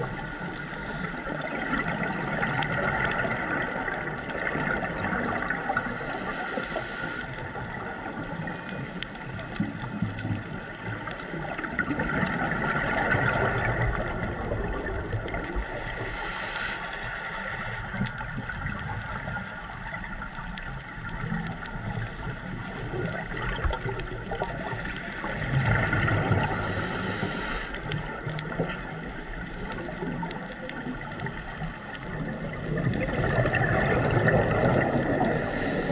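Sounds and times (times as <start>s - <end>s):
exhaust bubbles gurgling: 0.0s - 16.4s, 17.1s - 35.9s
regulator inhale hiss: 5.6s - 7.6s, 15.5s - 18.0s, 26.3s - 28.1s, 35.0s - 35.9s.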